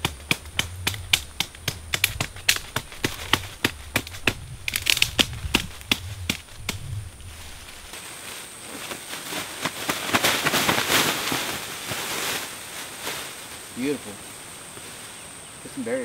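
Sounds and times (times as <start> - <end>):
twigs snapping: 0.0 - 8.0
plastic sheet rustling and flapping: 1.7 - 13.6.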